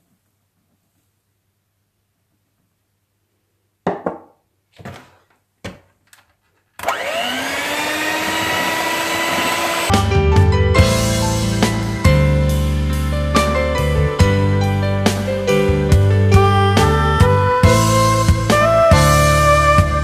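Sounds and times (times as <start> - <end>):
electric hand mixer whirring: 6.8 - 10.0.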